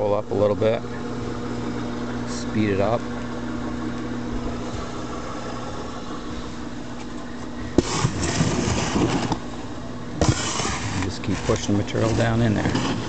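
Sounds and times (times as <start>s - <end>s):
drum screen motor humming: 0.0s - 13.0s
compost scraping and rustling: 7.8s - 9.4s.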